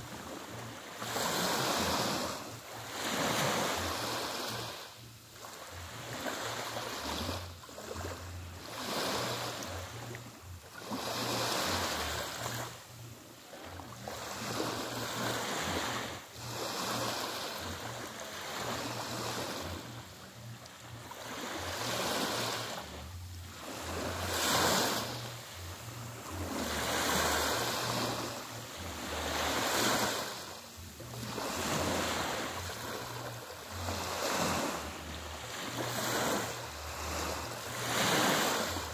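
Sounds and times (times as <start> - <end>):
small waves lapping on sand: 0.0 - 38.9.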